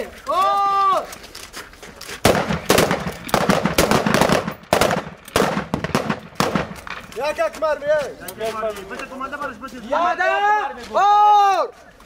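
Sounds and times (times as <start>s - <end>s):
rifle shots: 2.2s - 6.9s.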